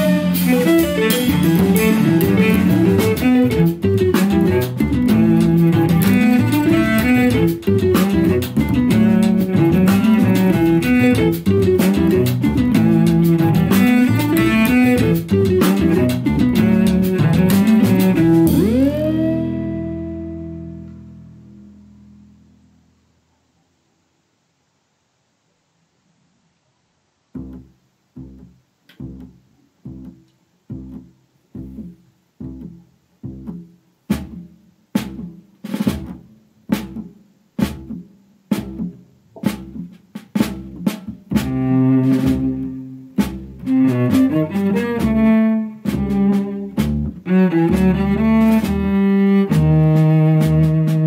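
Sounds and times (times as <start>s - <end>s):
jazz quartet playing: 0.0s - 20.0s, 41.3s - 51.0s
bowed cello: 0.0s - 20.1s, 41.4s - 51.0s
repeated plucked note: 0.0s - 22.4s.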